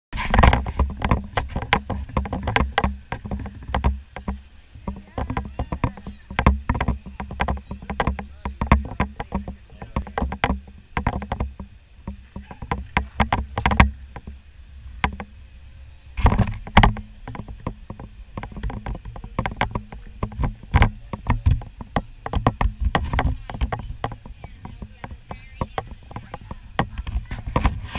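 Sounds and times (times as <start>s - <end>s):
train clanks and knocks: 0.3s - 14.3s, 16.2s - 27.9s
train rumbling along track: 16.2s - 27.9s.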